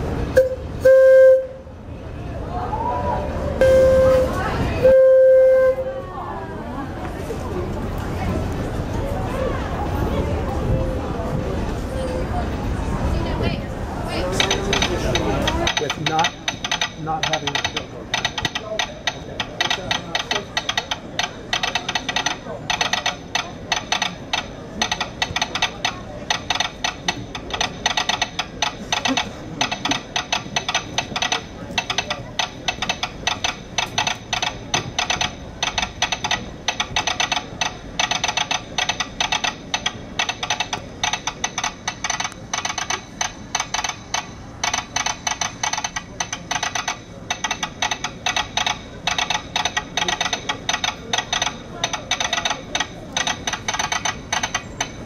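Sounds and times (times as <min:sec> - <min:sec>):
rapid irregular clicking: 0:14.3 - 0:55.0.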